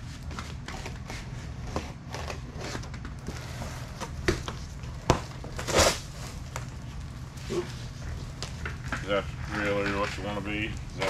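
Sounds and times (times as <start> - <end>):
cardboard scraping and crinkling: 0.0 - 11.0
cardboard ripping: 5.1 - 6.6
box cutter slitting cardboard: 5.6 - 6.1.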